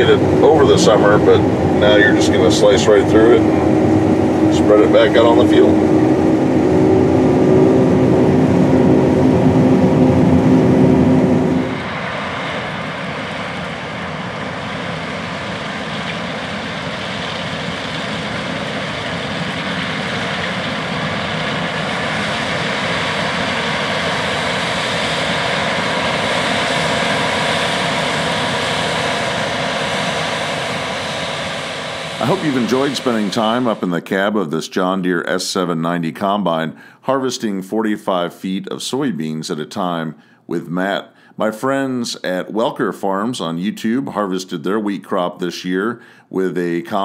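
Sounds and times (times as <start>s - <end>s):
farm machinery rush: 0.0s - 5.8s, 14.5s - 34.0s
steady tones: 0.0s - 13.7s, 30.4s - 34.3s
combine hum inside cab: 0.0s - 34.3s.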